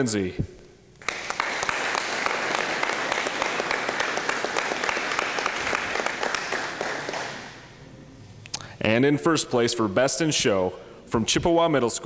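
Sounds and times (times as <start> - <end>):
audience applauding: 1.0 - 7.7.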